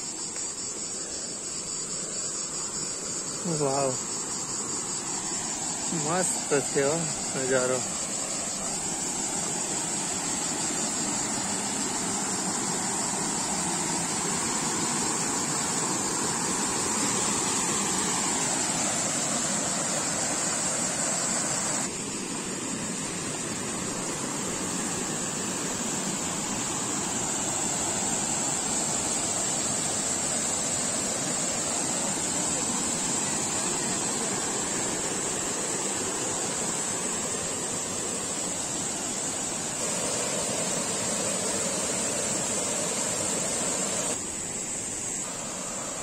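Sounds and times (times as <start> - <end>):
high insect buzz: 0.0 - 46.0
river rushing over rocks: 23.8 - 46.0.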